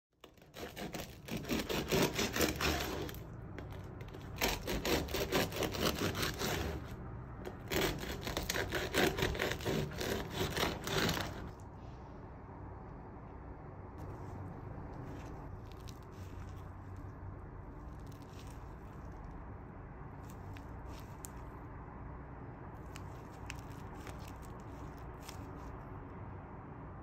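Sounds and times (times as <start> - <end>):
bread knife sawing crust: 0.2 - 11.5.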